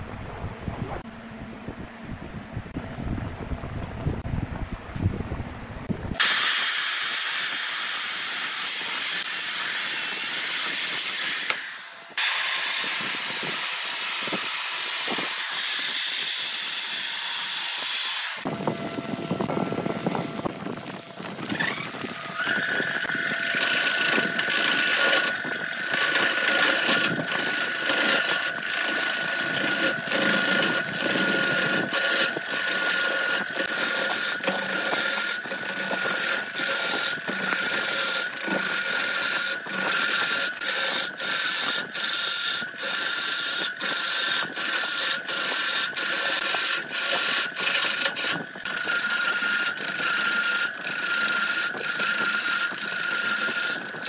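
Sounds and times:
gouge rasping on spinning log: 0:06.2 - 0:18.5, 0:19.2 - 0:54.0
wood lathe high whine: 0:06.2 - 0:54.0.

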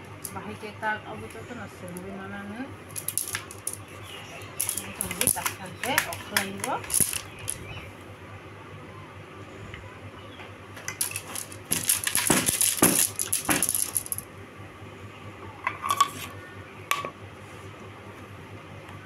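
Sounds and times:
hand loom sticks clattering: 0:02.9 - 0:07.7, 0:10.8 - 0:14.2.

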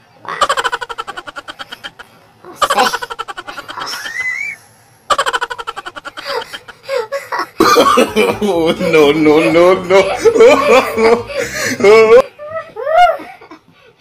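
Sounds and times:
man laughing hard: 0:02.6 - 0:04.2, 0:05.1 - 0:13.6.

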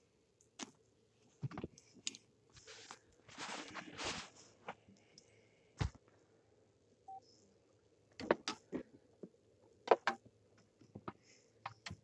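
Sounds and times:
rustling scrape: 0:02.6 - 0:04.8.

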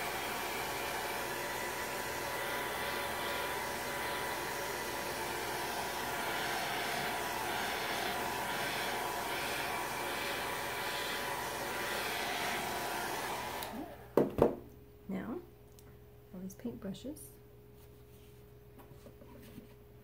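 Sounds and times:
hair dryer blowing with whine: 0:00.0 - 0:14.6.

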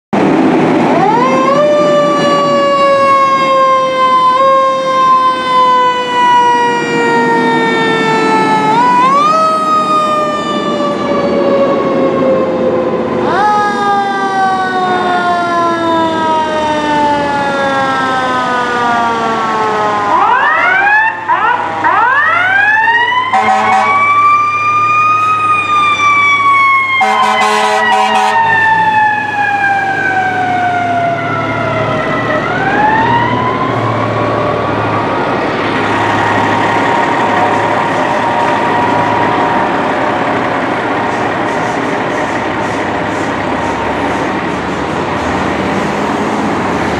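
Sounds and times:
fire engine siren wailing: 0:00.2 - 0:46.9
passing truck rumble: 0:00.2 - 0:46.9
horn blasts: 0:23.3 - 0:24.1, 0:27.0 - 0:28.5.

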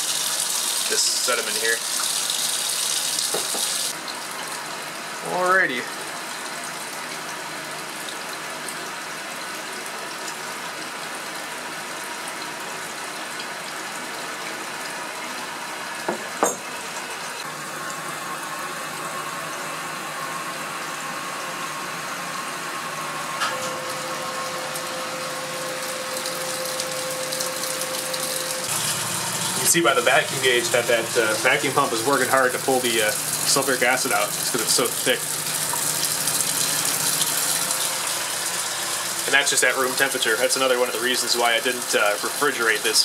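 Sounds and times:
water rushing through aspirator: 0:00.0 - 0:04.0, 0:23.7 - 0:43.0.

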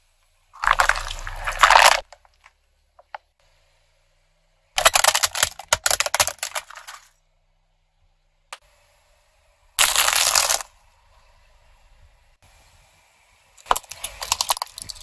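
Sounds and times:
peanut shells crunching: 0:00.6 - 0:02.4, 0:09.8 - 0:10.7, 0:13.6 - 0:15.0
plastic toy cracking: 0:00.6 - 0:03.2, 0:04.8 - 0:07.1, 0:13.6 - 0:15.0.

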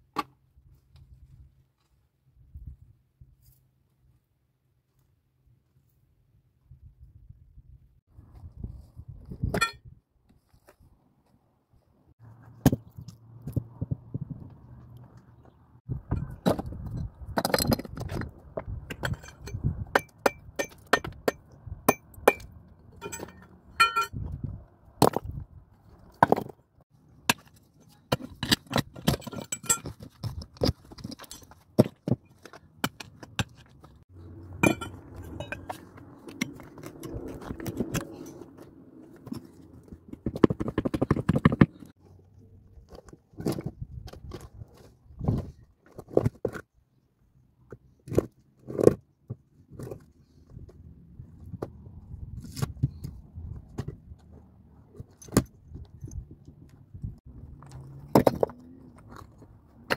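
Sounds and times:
rubble scraping and sliding: 0:12.2 - 0:21.2, 0:22.1 - 0:46.8, 0:47.7 - 0:59.9
stones clinking together: 0:16.2 - 0:24.2.

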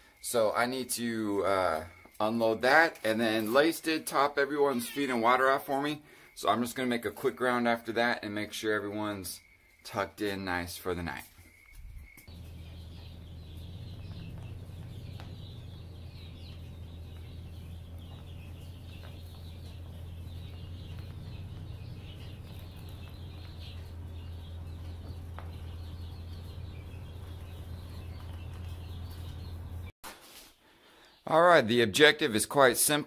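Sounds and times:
truck engine rumbling: 0:12.3 - 0:29.9.

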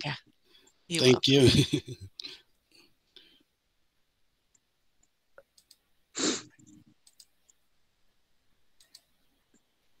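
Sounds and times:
faint clicks: 0:04.5 - 0:05.9, 0:06.6 - 0:07.6, 0:08.7 - 0:09.7.

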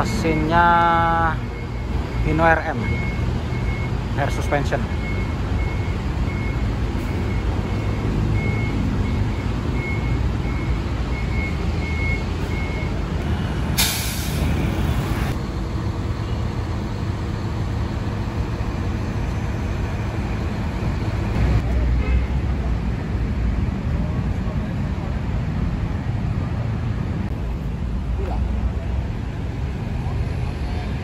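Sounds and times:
diesel bus engine idling: 0:00.0 - 0:31.0
compressed air hiss: 0:13.8 - 0:14.5.

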